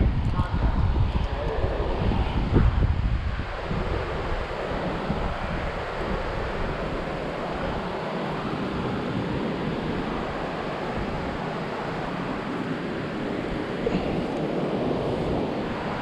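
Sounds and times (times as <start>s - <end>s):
uneven low rumble: 0.0s - 11.9s
steady rushing noise: 0.0s - 16.0s.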